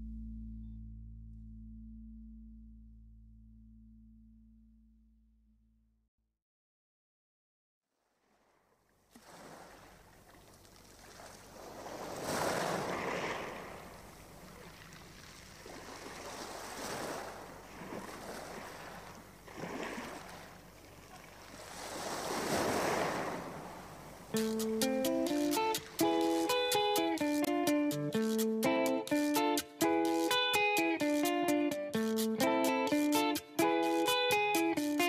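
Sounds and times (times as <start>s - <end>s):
plucked guitar music: 0.0s - 4.9s, 24.3s - 35.0s
rushing surf-like noise: 21.6s - 27.5s.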